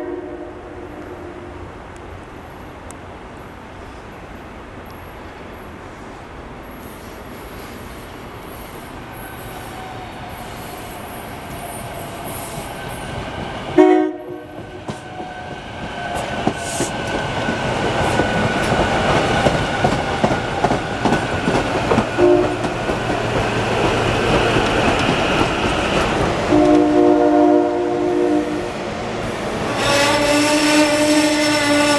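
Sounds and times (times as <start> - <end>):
train horn: 0.0 - 1.7, 13.8 - 16.2, 22.1 - 22.7, 26.5 - 28.8, 29.4 - 31.9
train cars rumbling and clattering: 6.5 - 27.4.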